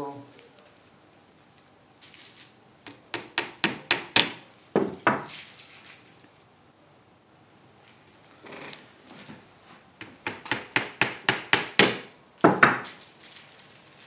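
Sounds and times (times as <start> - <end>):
hammer tapping pins into wood: 2.9 - 5.2, 10.0 - 12.9.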